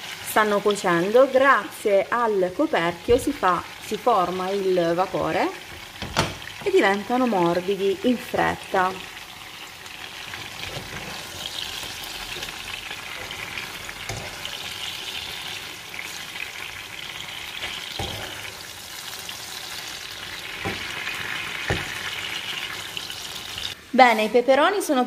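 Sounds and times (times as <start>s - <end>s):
peppers sizzling in oil: 0.0s - 25.0s.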